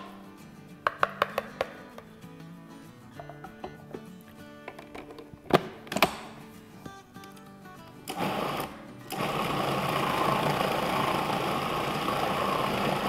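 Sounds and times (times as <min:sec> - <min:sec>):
food processor motor grinding: 0:08.1 - 0:13.0.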